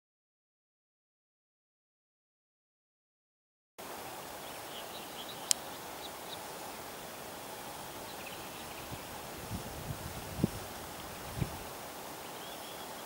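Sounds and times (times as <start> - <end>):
steady background hiss: 3.8 - 13.0
faint bird chirps: 4.4 - 9.2, 12.2 - 13.0.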